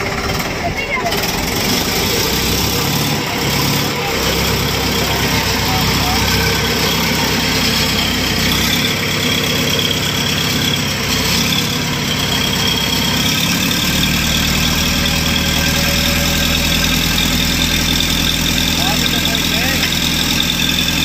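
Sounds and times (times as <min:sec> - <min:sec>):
boat engine droning: 0:00.0 - 0:21.0.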